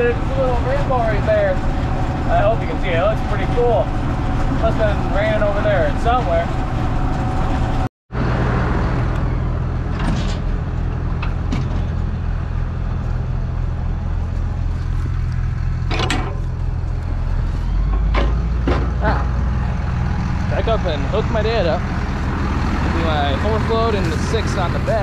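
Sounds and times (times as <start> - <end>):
tractor engine running: 0.0 - 25.0
machinery knocks and rattles: 9.8 - 12.3, 15.1 - 16.8, 17.8 - 19.3.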